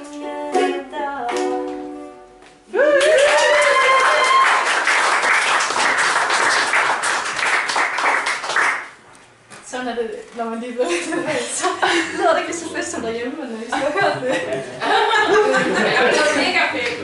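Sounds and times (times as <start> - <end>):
audience applause: 2.8 - 9.0.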